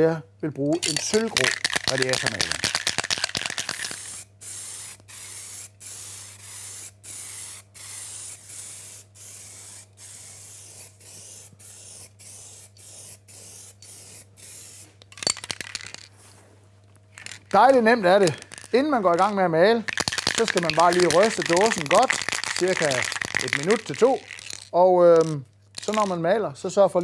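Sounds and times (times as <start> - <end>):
aerosol spray can hissing: 1.4 - 14.9, 19.9 - 24.7.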